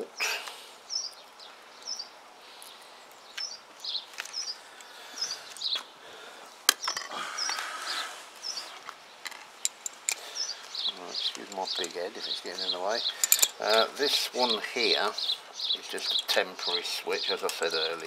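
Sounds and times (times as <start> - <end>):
small bird chirping: 0.2 - 6.0, 6.8 - 18.0
metal parts clicking: 9.2 - 10.2, 11.2 - 12.0, 13.1 - 13.9.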